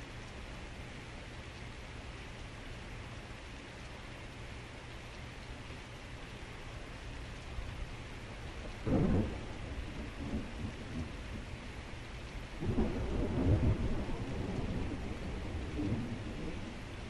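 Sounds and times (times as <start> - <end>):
heavy rain: 0.0 - 17.0
thunder: 8.8 - 11.5, 12.6 - 16.7.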